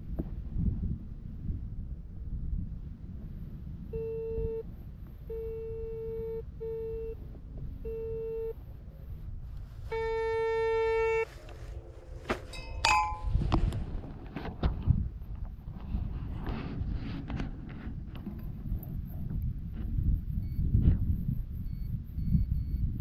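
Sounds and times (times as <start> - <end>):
metal detector buzzy beeps: 3.9 - 4.6, 5.3 - 7.2, 7.8 - 8.6, 9.9 - 11.3, 21.6 - 23.0.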